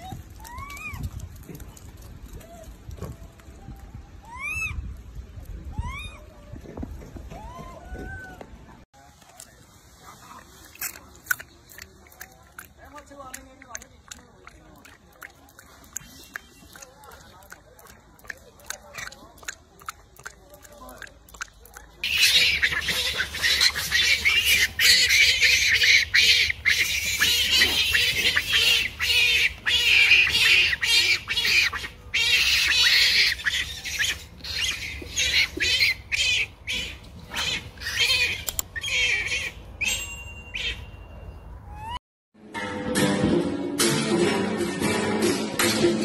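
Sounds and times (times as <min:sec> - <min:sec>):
monkeys screaming: 0:04.3 - 0:04.8, 0:22.0 - 0:40.0.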